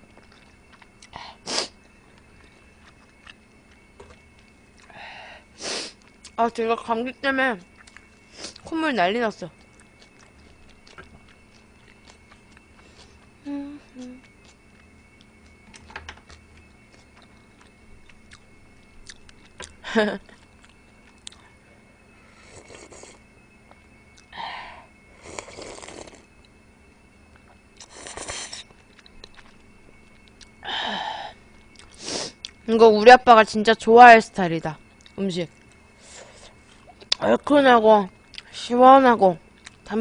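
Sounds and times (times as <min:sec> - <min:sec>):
soft chewing and mouth noises: 0:00.1 - 0:01.2, 0:01.8 - 0:04.9, 0:07.7 - 0:08.7, 0:09.6 - 0:21.6, 0:27.4 - 0:30.6, 0:31.5 - 0:32.7, 0:39.5 - 0:39.9.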